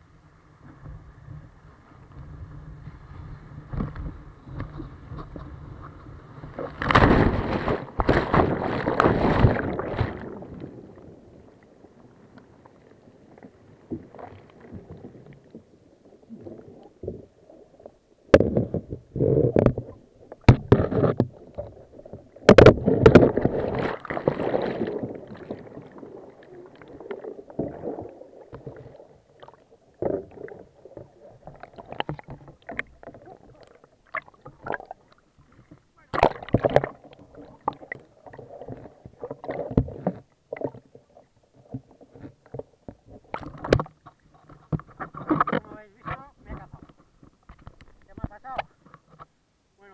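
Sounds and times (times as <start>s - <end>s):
underwater gurgling: 0.0s - 48.6s
kayak knocking in surf: 2.8s - 11.3s, 18.2s - 49.3s.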